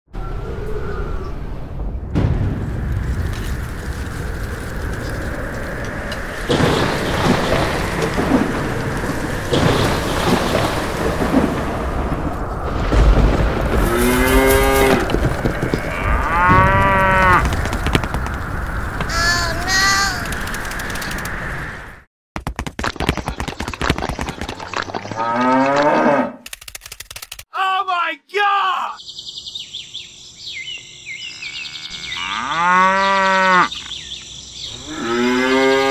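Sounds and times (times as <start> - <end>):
thunder rolling: 0.2 - 21.2
steady rain: 2.7 - 21.3
cattle mooing: 15.9 - 17.5, 31.4 - 33.7.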